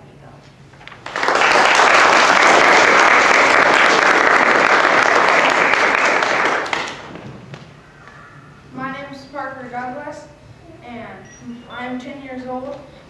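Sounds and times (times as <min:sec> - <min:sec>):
audience applauding: 0:00.9 - 0:07.3.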